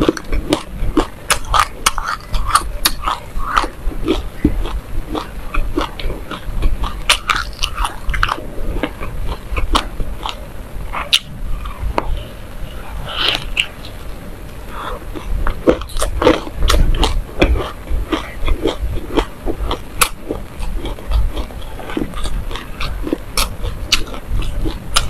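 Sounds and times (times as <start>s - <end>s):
chewing crunchy seeds: 0.0s - 25.0s.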